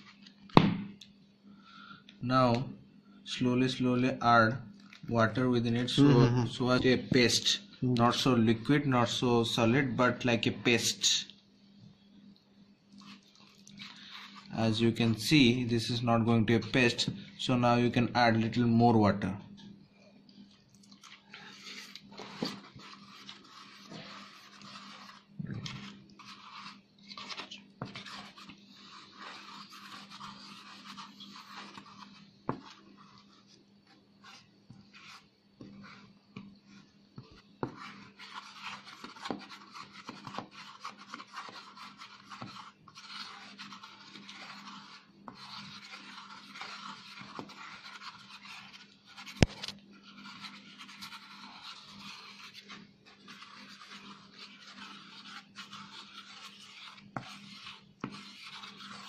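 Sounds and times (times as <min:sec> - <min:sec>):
faint steady hum: 0:00.0 - 0:59.0
sharp knock: 0:00.6 - 0:00.9
metal spatula scraping paste in bowl: 0:13.0 - 0:16.0, 0:21.1 - 0:59.0.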